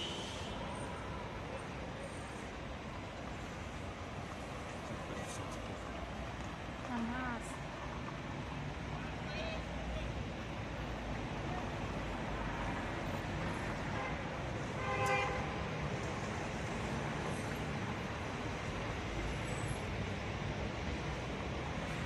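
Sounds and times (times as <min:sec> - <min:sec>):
street traffic noise: 0:00.0 - 0:22.0
car horn toot: 0:14.8 - 0:15.5.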